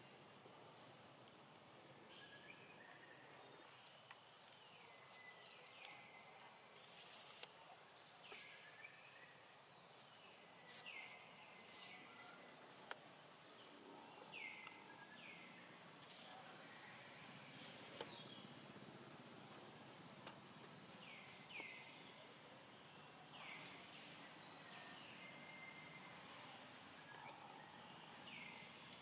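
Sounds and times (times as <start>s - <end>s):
steady high hiss: 0.0s - 29.0s.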